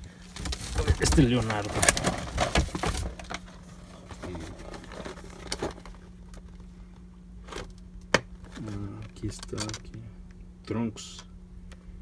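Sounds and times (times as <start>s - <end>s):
plastic packaging rustling: 0.0s - 6.7s.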